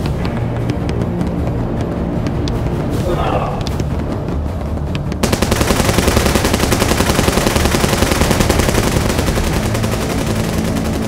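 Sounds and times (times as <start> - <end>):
rapid automatic gunfire: 5.2 - 11.0.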